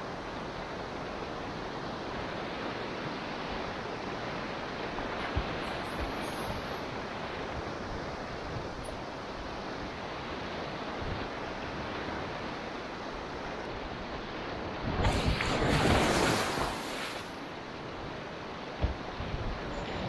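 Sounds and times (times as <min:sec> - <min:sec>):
river water rushing: 0:00.0 - 0:20.0
water splash: 0:14.8 - 0:17.4.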